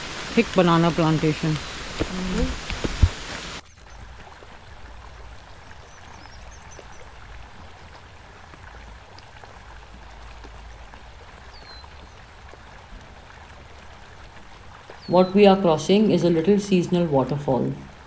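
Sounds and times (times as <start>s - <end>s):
stream flowing: 0.0s - 18.0s
faint high ticking: 3.6s - 18.0s.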